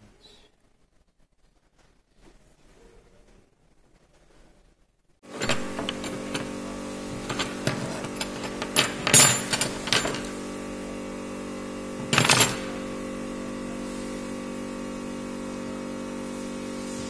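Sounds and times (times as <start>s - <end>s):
steady hum: 4.7s - 17.0s
metal tools clattering on wooden table: 5.3s - 10.4s, 12.0s - 12.8s.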